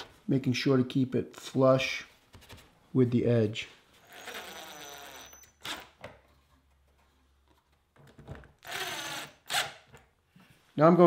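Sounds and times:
cordless driver driving screws: 0:04.1 - 0:06.1, 0:08.6 - 0:10.0.

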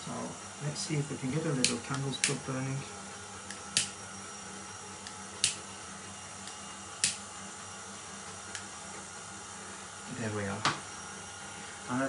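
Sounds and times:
faint steady hum: 0:00.0 - 0:12.0
lighter igniter clicking: 0:01.6 - 0:02.4, 0:03.4 - 0:04.0, 0:05.0 - 0:05.6, 0:06.4 - 0:07.2.

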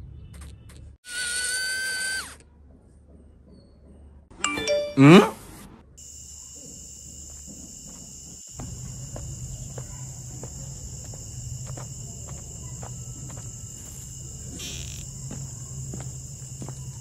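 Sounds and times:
crickets trilling: 0:06.0 - 0:17.0.

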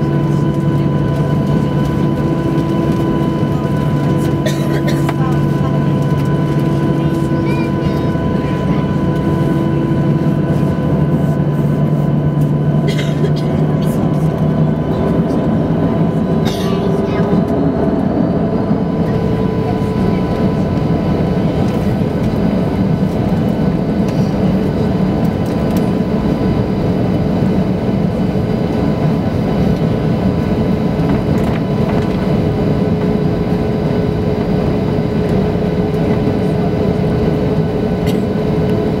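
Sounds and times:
jet engines rumbling in cabin: 0:00.0 - 0:39.0.

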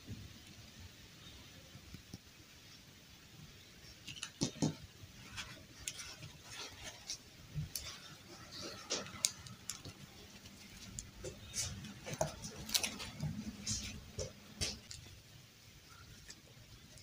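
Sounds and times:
fabric gown rustling: 0:05.1 - 0:17.0.

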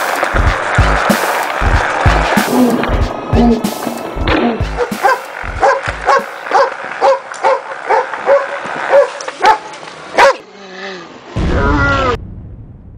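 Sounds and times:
dog barking: 0:04.8 - 0:10.4
loud low rumbling: 0:11.4 - 0:12.9.

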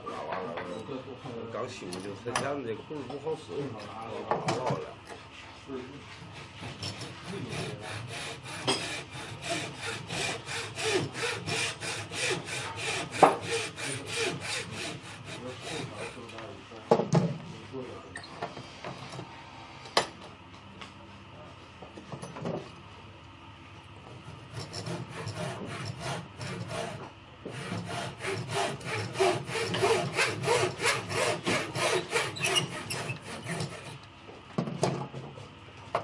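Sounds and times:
hand saw cutting wood: 0:06.2 - 0:16.4, 0:24.3 - 0:34.0.

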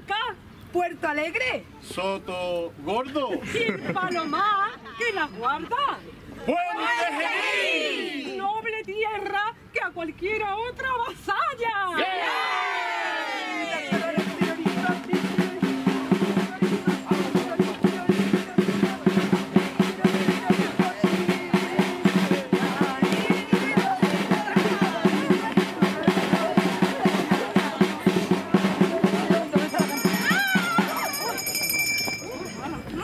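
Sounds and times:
drum beaten in fast rhythm: 0:13.5 - 0:32.6
group singing sustained notes: 0:18.8 - 0:29.8.

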